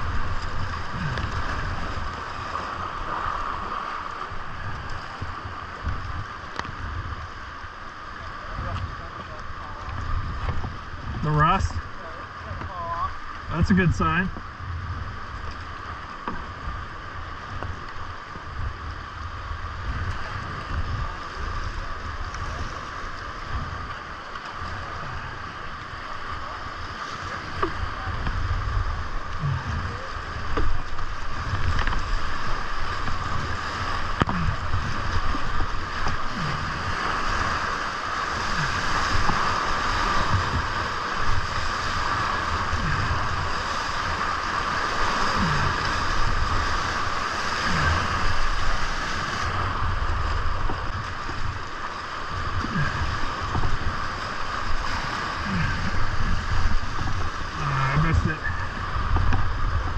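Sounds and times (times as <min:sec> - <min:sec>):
wind buffeting microphone: 0:00.0 - 0:07.5, 0:13.6 - 0:59.9
waves splashing over kayak: 0:00.0 - 0:59.9
whitewater rapids rushing: 0:15.8 - 0:59.9.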